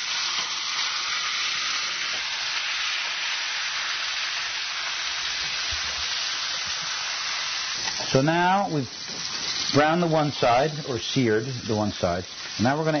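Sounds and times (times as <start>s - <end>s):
meat sizzling in hot oil: 0.0s - 13.0s.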